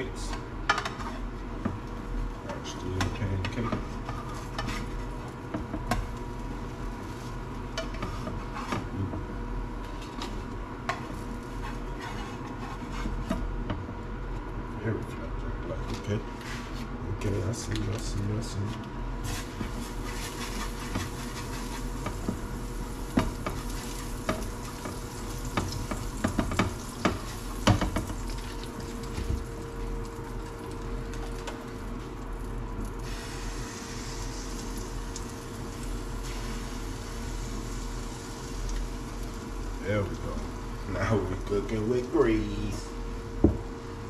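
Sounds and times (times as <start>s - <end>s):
food sizzling in a frying pan: 19.2s - 43.1s.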